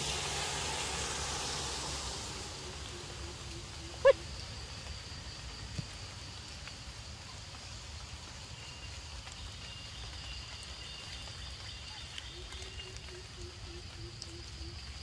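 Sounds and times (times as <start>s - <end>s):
high insect drone: 0.0s - 15.0s
lower insect tone: 0.0s - 15.0s.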